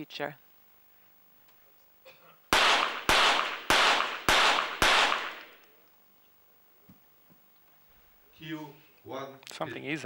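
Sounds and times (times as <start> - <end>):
pistol shots with echo: 2.5 - 5.6.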